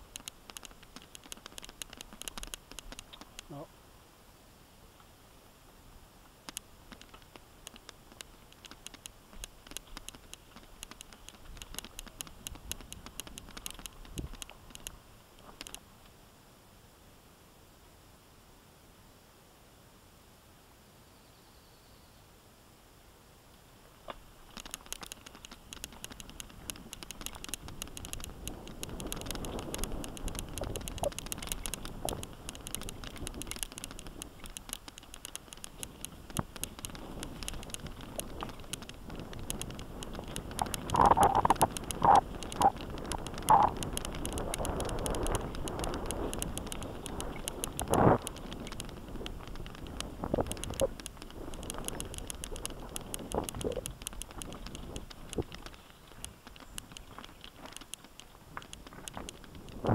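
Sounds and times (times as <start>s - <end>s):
bike clicking and rattling: 0.0s - 3.6s, 6.5s - 15.8s, 24.1s - 59.9s
bike tyres rumbling on dirt: 25.8s - 59.9s
wind on microphone: 26.1s - 34.6s, 35.6s - 57.1s, 58.5s - 59.9s.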